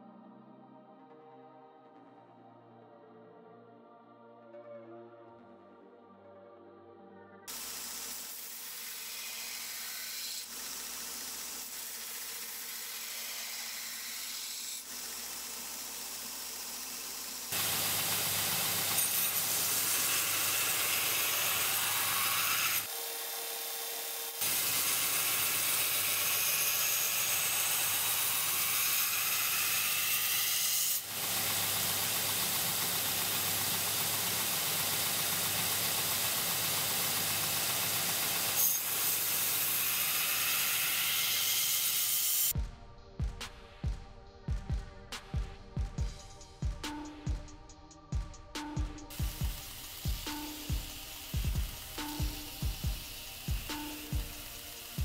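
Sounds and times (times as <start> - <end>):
belt grinder grinding steel: 7.5 - 42.5, 49.1 - 55.0.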